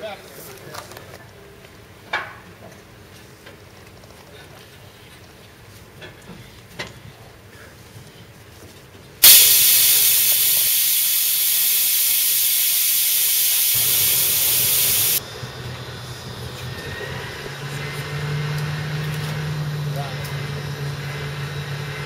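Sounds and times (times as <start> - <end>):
compressed air hissing: 9.2 - 15.2.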